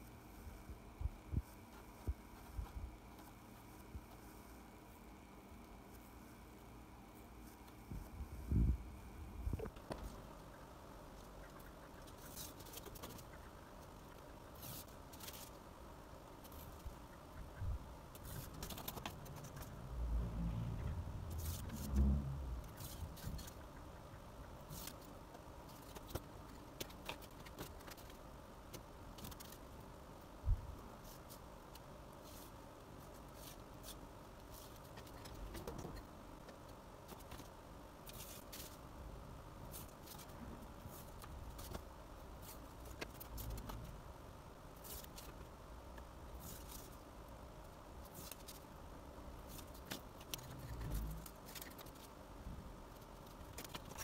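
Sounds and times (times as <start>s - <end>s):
light scratching: 18.2s - 23.7s.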